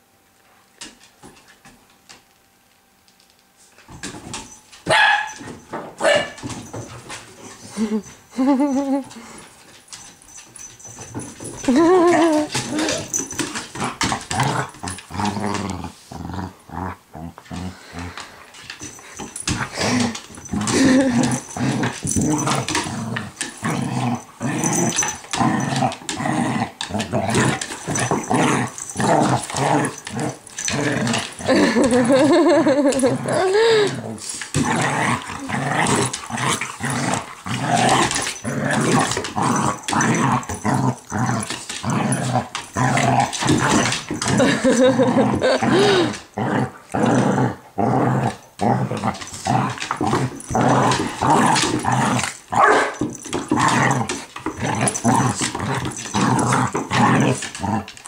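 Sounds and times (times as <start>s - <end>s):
dog barking: 4.9s - 5.4s, 6.0s - 6.4s, 52.6s - 53.0s
dogs growling: 10.8s - 58.0s
dog whining: 31.5s - 34.0s.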